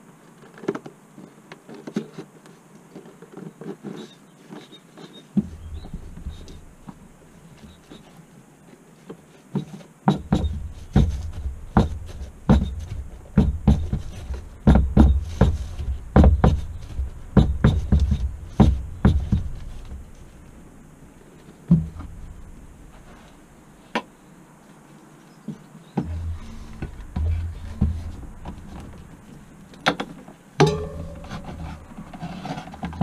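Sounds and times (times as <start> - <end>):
bike wheel thudding on workbench: 10.1 - 20.2, 26.0 - 29.2, 30.6 - 32.3.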